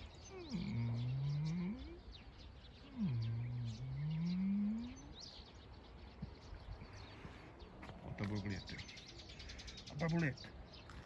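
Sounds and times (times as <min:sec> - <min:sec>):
birds chirping: 0:00.0 - 0:11.0
deep moo-like animal call: 0:02.9 - 0:05.0.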